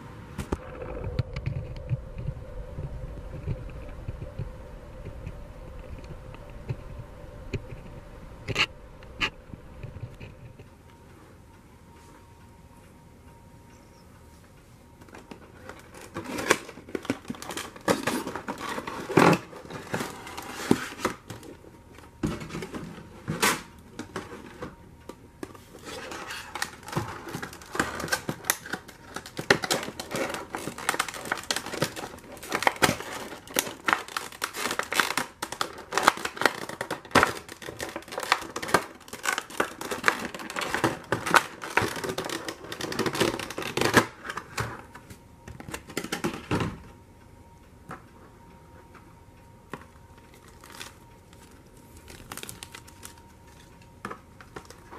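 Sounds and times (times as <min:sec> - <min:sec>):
plastic cover crinkling and clicking: 0:15.0 - 0:46.9, 0:49.7 - 0:54.9.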